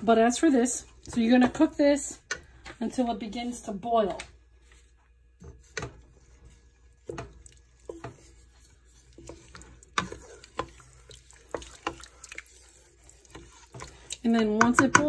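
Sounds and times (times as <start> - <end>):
wooden spoon stirring in metal pot: 0.0 - 15.0
spoon knocking and scraping pot: 5.4 - 15.0.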